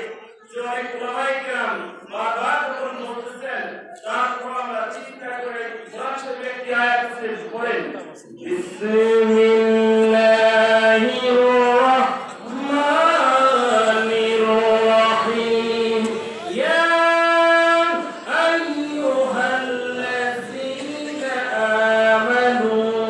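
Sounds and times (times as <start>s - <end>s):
man singing into a microphone: 5.4s - 23.0s.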